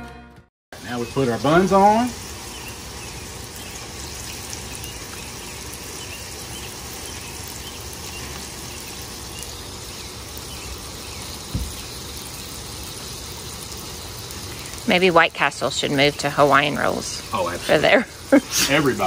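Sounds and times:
meat sizzling on a griddle: 0.8 - 19.0
low thump: 11.5 - 11.8.

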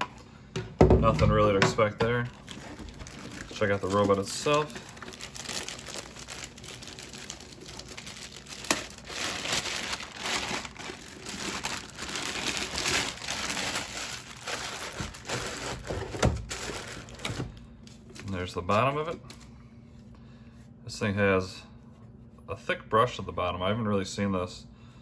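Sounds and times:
plastic bag crinkling: 2.2 - 18.4.

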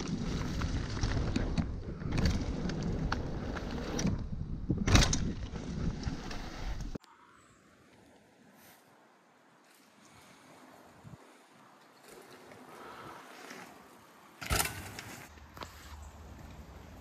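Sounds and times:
bike rattling and clicking: 0.0 - 6.9, 14.4 - 15.3
bike tyre rumble on dirt trail: 0.0 - 7.0, 9.6 - 17.0.

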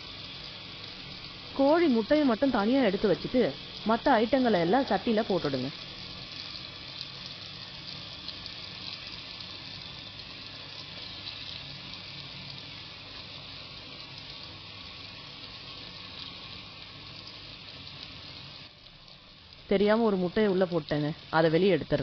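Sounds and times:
food sizzling in oil: 0.0 - 22.0.

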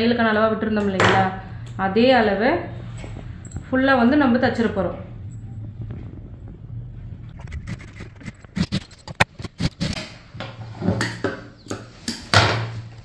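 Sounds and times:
low steady hum: 0.0 - 9.6.

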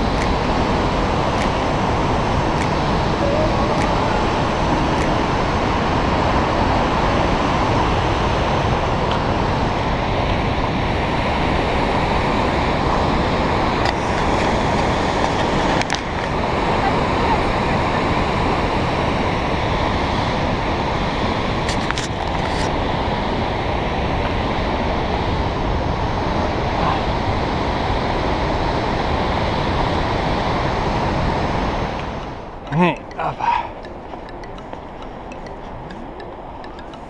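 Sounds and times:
rushing river white water: 0.0 - 37.0
faint ticks: 33.8 - 37.0.

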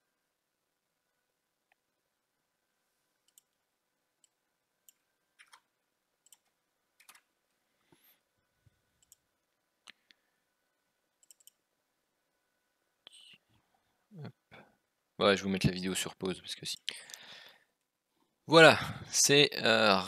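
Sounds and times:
computer mouse clicks: 3.2 - 3.6, 4.2 - 7.3, 9.0 - 10.2, 11.2 - 11.6.

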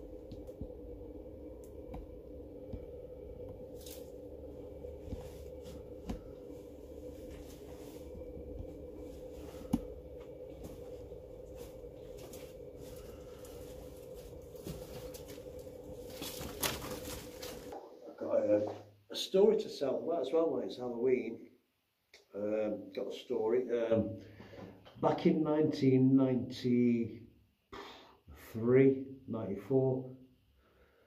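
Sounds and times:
steady low hum: 0.0 - 21.4.

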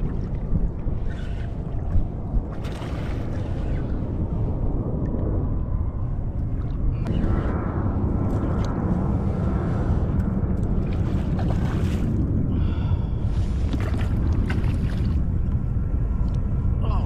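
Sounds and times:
wind rumbling on microphone: 0.0 - 17.0
water sloshing around kayak: 13.4 - 15.5.

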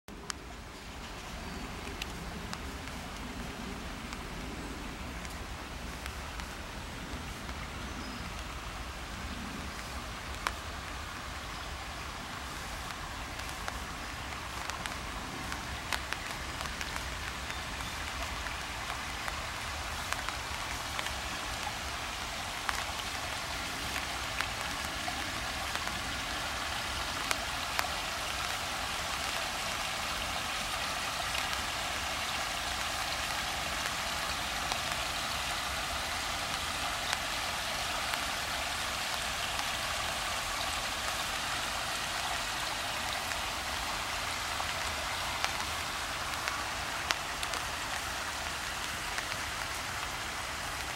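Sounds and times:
rain falling on water and trees: 0.1 - 50.9
raindrops ticking close by: 0.1 - 50.9.

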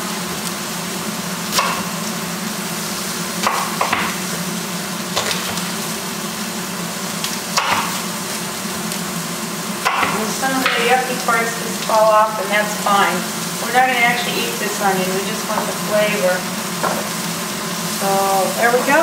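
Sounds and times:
meat sizzling in a metal pan: 0.0 - 19.0
knife knocking on wooden cutting board: 16.8 - 17.1.

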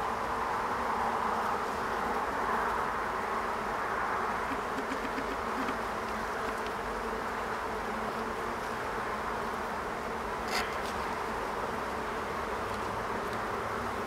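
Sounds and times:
bees buzzing: 0.1 - 14.0
faint ticks and clicks: 4.5 - 6.8.

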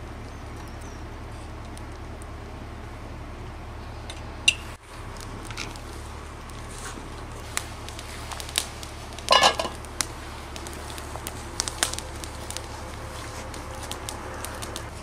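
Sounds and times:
campfire crackling and popping: 0.0 - 15.0
metal lid clatter on pot: 9.3 - 9.8.

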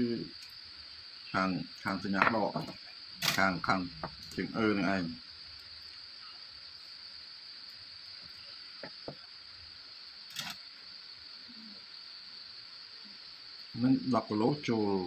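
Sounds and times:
cricket trill: 0.0 - 15.0.

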